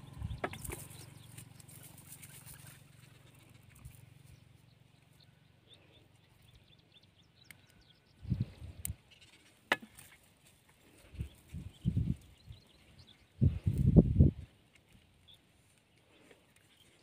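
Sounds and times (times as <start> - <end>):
low steady rumble: 0.0 - 9.2
net rustling and ticking: 0.5 - 4.3.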